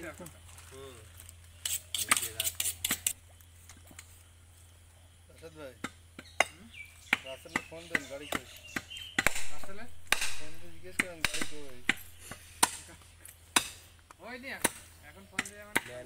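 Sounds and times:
knife chopping meat on wood: 5.8 - 12.8
background hissing: 8.6 - 15.3.

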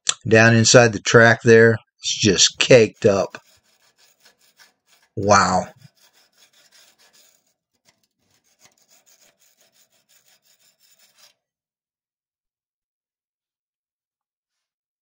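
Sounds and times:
light scratchy rubbing: 2.1 - 11.4.

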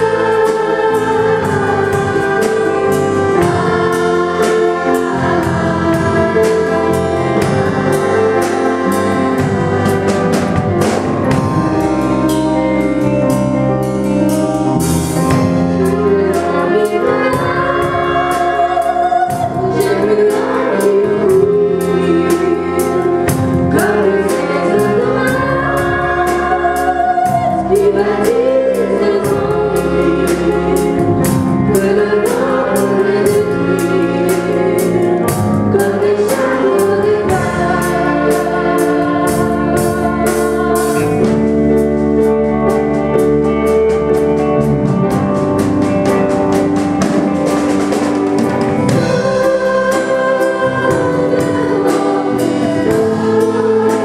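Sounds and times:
drum kit with cymbals: 0.0 - 54.0
piano: 0.0 - 54.0
woman singing into a microphone: 15.8 - 31.0, 49.0 - 54.0.

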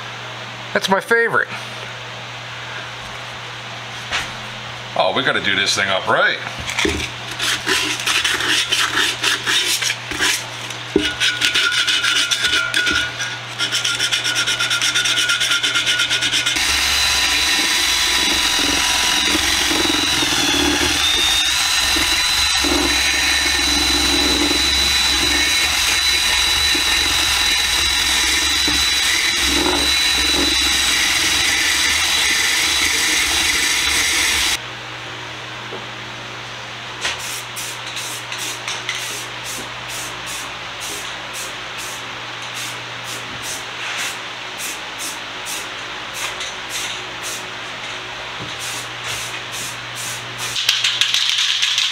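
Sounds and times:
sandpaper sanding metal can: 7.3 - 10.4, 11.0 - 34.6
cordless drill whining: 15.9 - 34.6.

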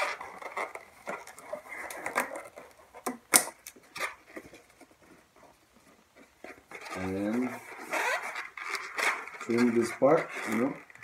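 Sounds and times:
balloons squeaking and rubbing: 0.0 - 2.9, 6.3 - 11.0.

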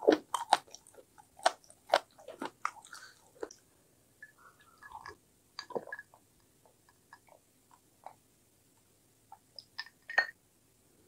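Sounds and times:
gulps and swallows: 4.2 - 8.2.

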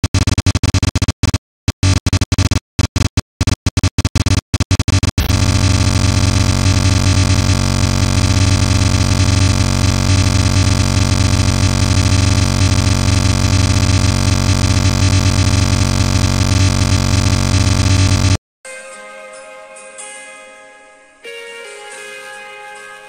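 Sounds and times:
electronic noise drone with hum: 1.8 - 18.4.

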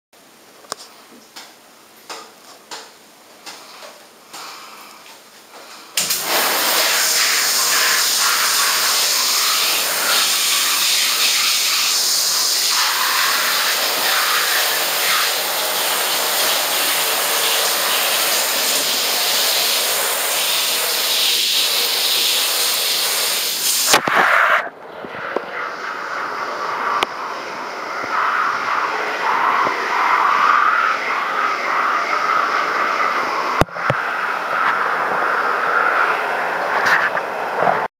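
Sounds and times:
shower spray hissing: 6.0 - 24.6, 25.6 - 36.7.

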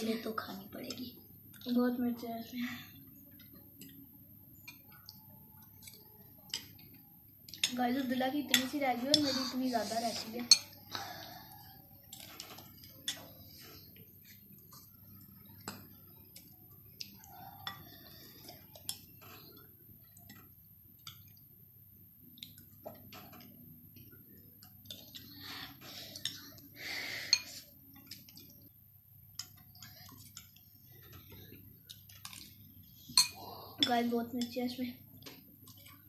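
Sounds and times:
cutlery clinking on ceramic bowls: 10.2 - 10.9, 29.3 - 34.6.

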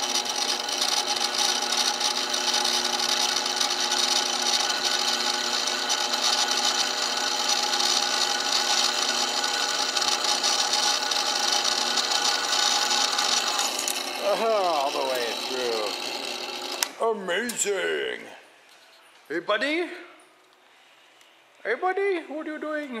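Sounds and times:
drill press motor hum: 0.0 - 17.0
drill bit hissing through metal: 7.1 - 16.9.

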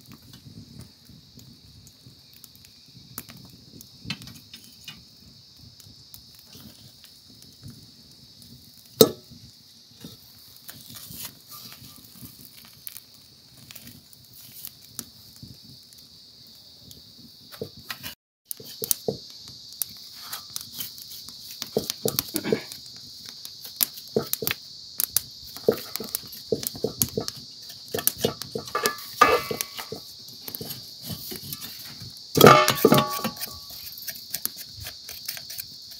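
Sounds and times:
insects chirring: 0.0 - 35.9
wood fire crackling: 0.0 - 35.9
knife scraping in metal bowl: 27.9 - 30.0, 32.4 - 33.9.

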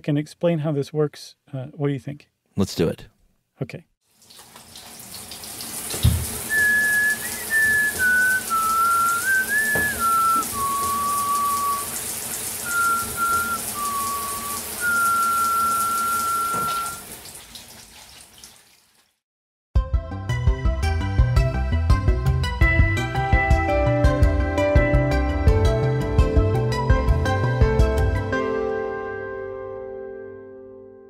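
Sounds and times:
person whistling a tune: 6.5 - 12.0, 12.6 - 17.0.

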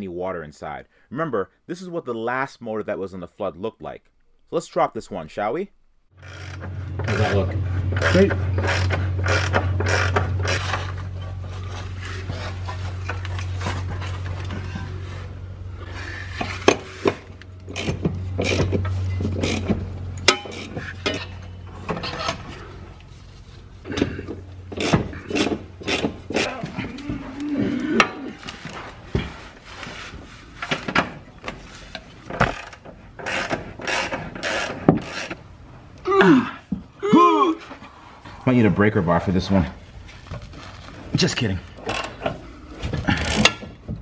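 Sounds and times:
steady low hum: 5.7 - 37.0
ratchet wrench clicking: 8.0 - 10.8.

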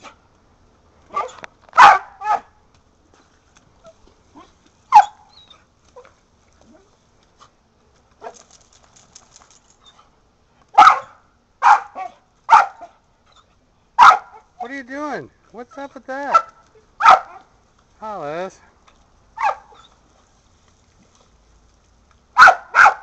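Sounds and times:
dog barking: 1.1 - 2.5, 4.9 - 5.2, 10.8 - 12.9, 14.0 - 14.5, 16.3 - 17.5, 19.4 - 19.8, 22.4 - 23.0.

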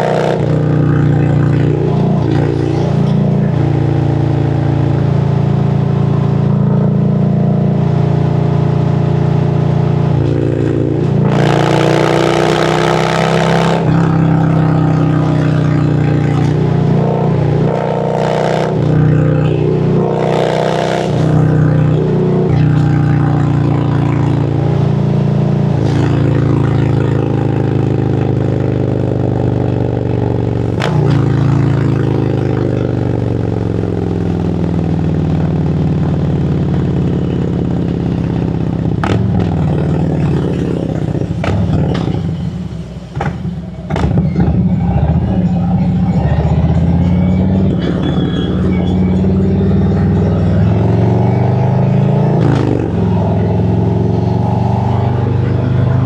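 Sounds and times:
motorcycle engine running: 0.0 - 56.0
loud rushes of noise: 40.6 - 56.0.

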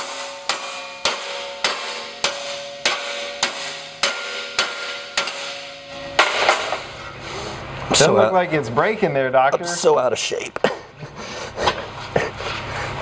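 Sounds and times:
hammer striking ringing steel: 0.0 - 7.2.

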